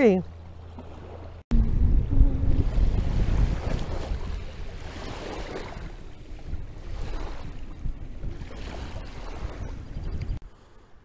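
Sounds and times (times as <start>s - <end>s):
wind buffeting microphone: 1.0s - 10.4s
small sea waves washing: 2.3s - 10.9s.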